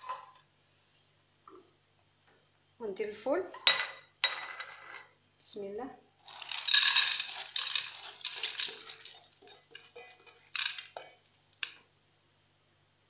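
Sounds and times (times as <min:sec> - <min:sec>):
dried beans rattling into metal pot: 0:06.2 - 0:11.8.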